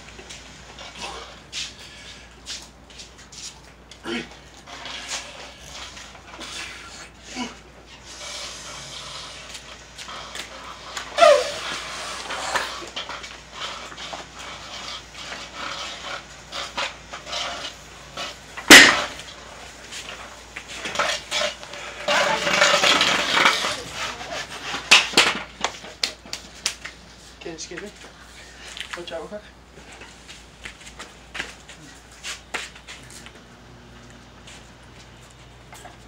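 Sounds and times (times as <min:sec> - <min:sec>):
effortful breathing: 0:00.8 - 0:03.4, 0:04.0 - 0:18.2
person grunting: 0:04.0 - 0:04.4.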